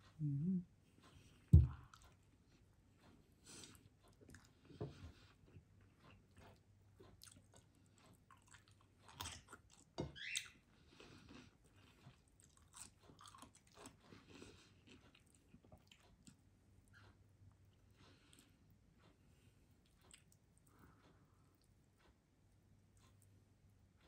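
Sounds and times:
person chewing: 0:03.5 - 0:10.0, 0:10.8 - 0:18.6, 0:19.7 - 0:21.6.

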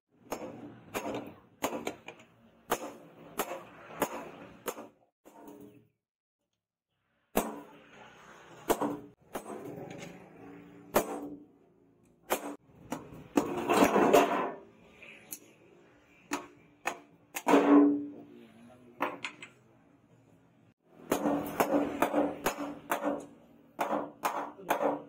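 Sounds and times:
hammer striking metal on anvil: 0:21.0 - 0:25.0.

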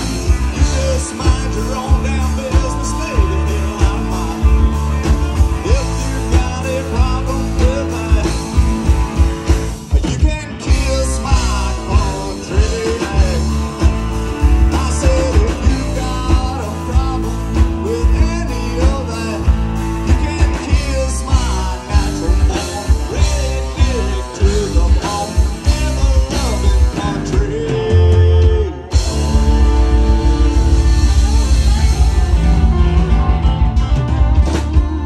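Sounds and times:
country-rock band playing: 0:00.0 - 0:35.0.

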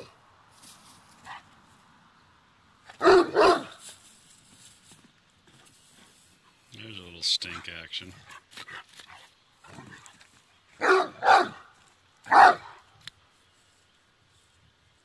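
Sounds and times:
dog barking: 0:02.9 - 0:03.8, 0:10.8 - 0:11.7, 0:12.3 - 0:12.8.

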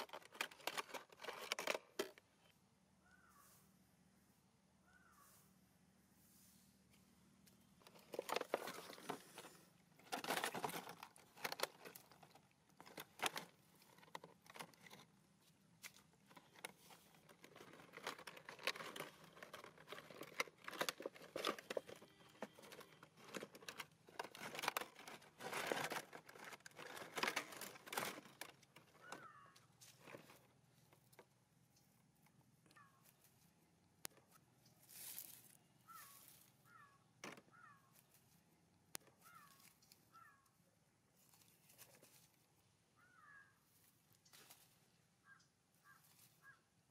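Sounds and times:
plastic bottle crinkling: 0:00.0 - 0:02.2, 0:07.8 - 0:15.2, 0:15.8 - 0:31.2.

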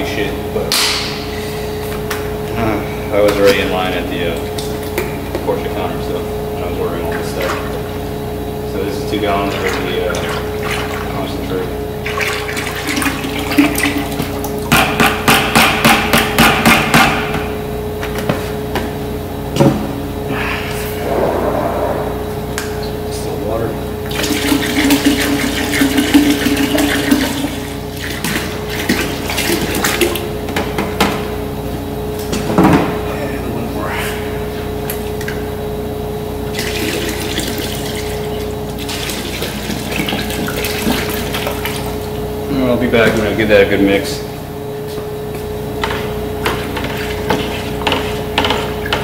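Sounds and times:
steady hum: 0:00.0 - 0:14.7, 0:17.3 - 0:48.2
liquid pouring into plastic bucket: 0:36.6 - 0:42.0.

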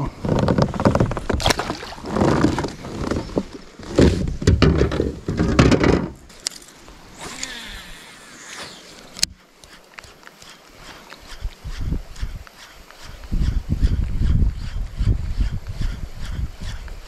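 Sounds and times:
knocks and rubbing on plastic kayak: 0:00.2 - 0:06.3.

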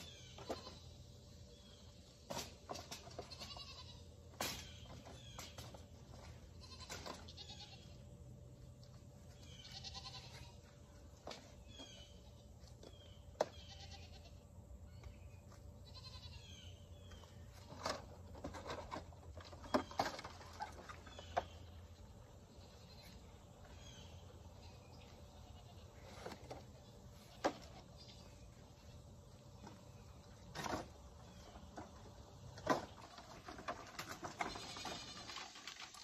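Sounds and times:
goats bleating: 0:03.3 - 0:04.0, 0:06.6 - 0:07.9, 0:09.5 - 0:10.6, 0:13.6 - 0:14.4, 0:15.8 - 0:16.6.

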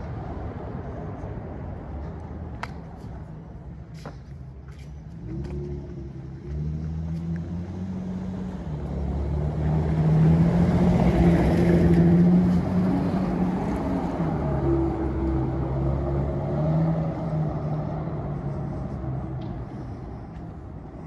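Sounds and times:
car engine driving: 0:04.4 - 0:21.0.

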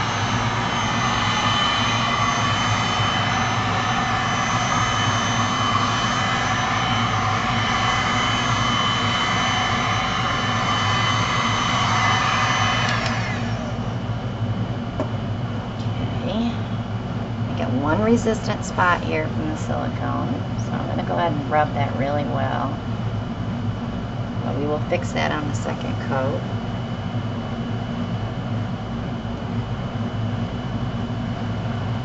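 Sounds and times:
heat gun blowing: 0:07.1 - 0:13.8.

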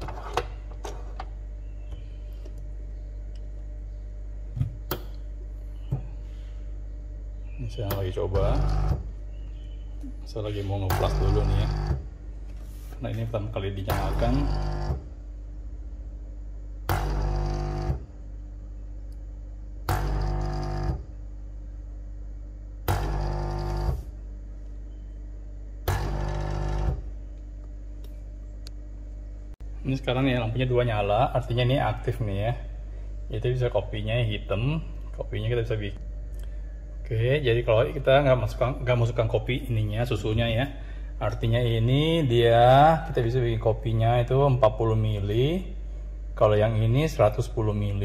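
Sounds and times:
steady low hum: 0:00.0 - 0:48.0
coffee machine pump buzzing: 0:07.3 - 0:15.2, 0:16.8 - 0:18.8, 0:19.8 - 0:21.2, 0:22.8 - 0:24.2, 0:24.9 - 0:27.4.

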